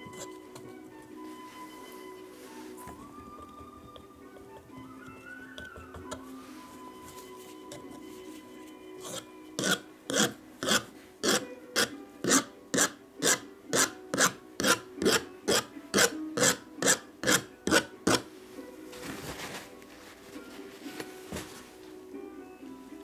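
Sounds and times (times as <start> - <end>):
palette knife scratching paint: 0.0 - 0.8, 5.5 - 8.4, 9.0 - 18.3.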